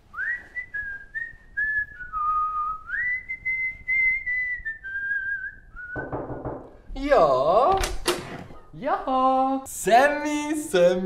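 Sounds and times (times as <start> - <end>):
man whistling a slow tune: 0.1 - 6.1.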